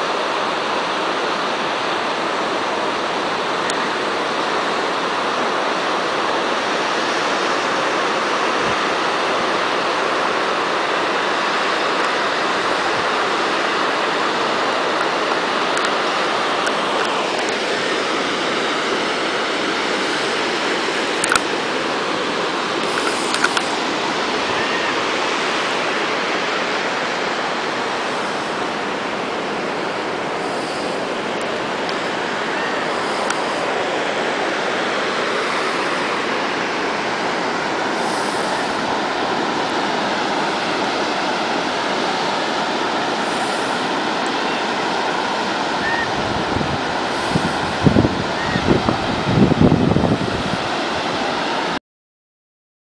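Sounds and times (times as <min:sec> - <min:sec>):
ocean surf breaking: 0:00.0 - 0:51.8.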